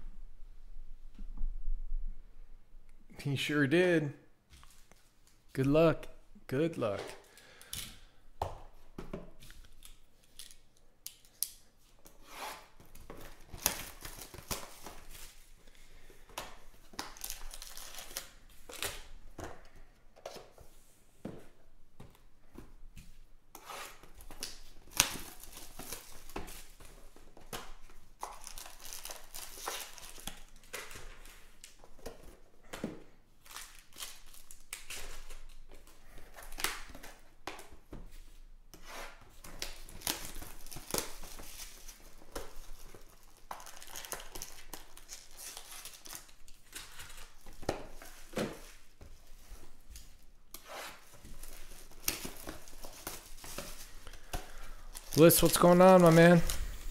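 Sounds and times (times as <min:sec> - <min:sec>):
foil packs crinkling: 0:12.8 - 0:16.0, 0:16.8 - 0:19.2, 0:24.2 - 0:31.8, 0:33.4 - 0:37.1, 0:39.5 - 0:50.3, 0:51.0 - 0:56.9
plastic shrink wrap tearing: 0:39.6 - 0:47.6.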